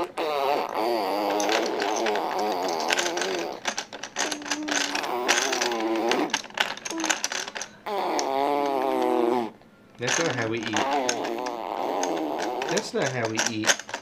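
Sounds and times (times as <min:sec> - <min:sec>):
baby babbling and humming: 0:00.0 - 0:09.6, 0:10.7 - 0:12.9
plastic toy rings clicking: 0:01.2 - 0:08.8, 0:10.0 - 0:14.0.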